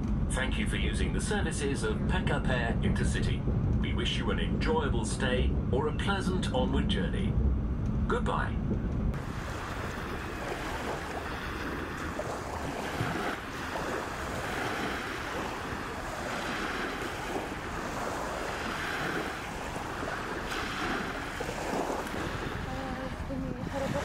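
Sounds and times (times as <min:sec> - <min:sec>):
wind buffeting microphone: 0:01.1 - 0:24.0
small waves lapping: 0:09.2 - 0:24.0.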